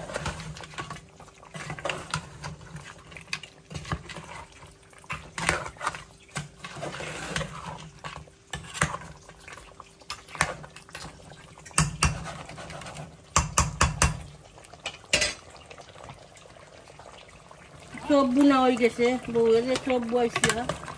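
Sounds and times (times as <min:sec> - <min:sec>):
metal utensils clinking on pots: 0:11.8 - 0:15.4, 0:18.4 - 0:20.9.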